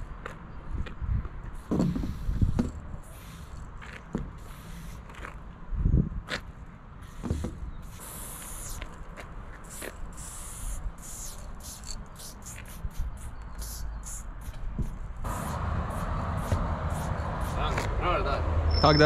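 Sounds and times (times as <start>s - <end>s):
aerosol spray can hissing: 7.0s - 9.0s, 9.6s - 14.6s, 15.3s - 18.0s.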